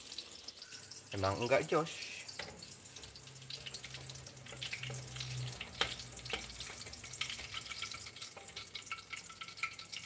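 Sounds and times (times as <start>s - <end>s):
omelette sizzling in oil: 0.0s - 10.0s
spatulas scraping and clicking on pan: 2.3s - 10.0s.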